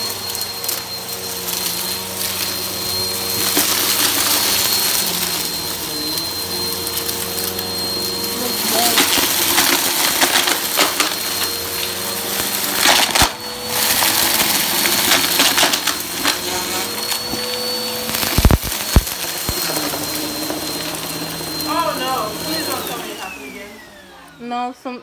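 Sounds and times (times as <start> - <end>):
vacuum cleaner motor whine: 0.0 - 25.0
debris rattling through vacuum: 1.9 - 23.3.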